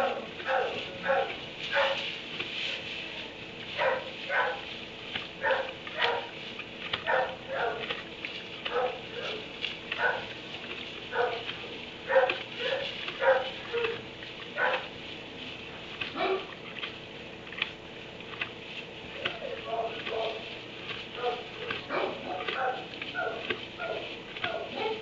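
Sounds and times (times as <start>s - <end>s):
dog barking: 0.0s - 2.0s, 3.8s - 4.7s, 5.4s - 6.4s, 7.0s - 8.0s, 8.6s - 10.4s, 11.1s - 14.0s, 14.6s - 14.9s, 16.1s - 16.6s, 19.4s - 20.5s, 21.2s - 25.0s.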